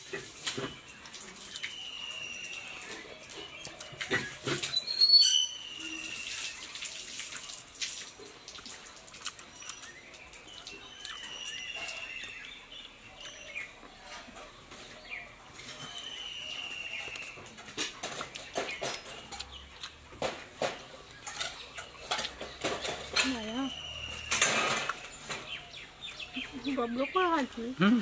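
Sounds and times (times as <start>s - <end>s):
people eating juicy orange: 0.0s - 4.8s, 5.8s - 28.0s
bird whistle call: 4.7s - 6.4s.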